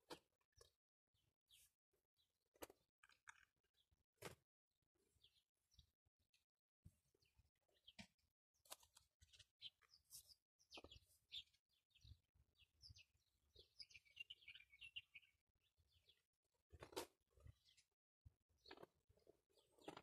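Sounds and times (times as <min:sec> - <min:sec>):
small bird chirping: 0:07.2 - 0:17.9.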